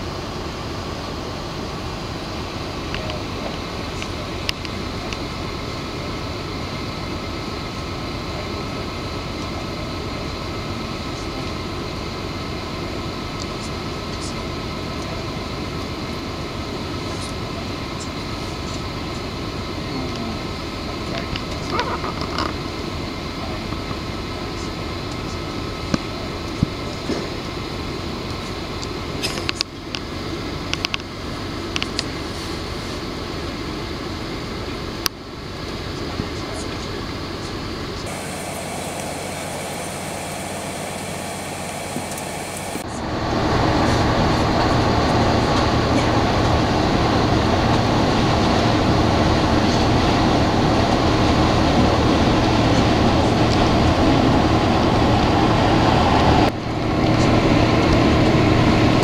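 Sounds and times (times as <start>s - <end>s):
faint steady whine: 0.0s - 59.0s
mechanical rumble and hiss: 0.0s - 59.0s
road noise inside moving vehicle: 0.0s - 59.0s.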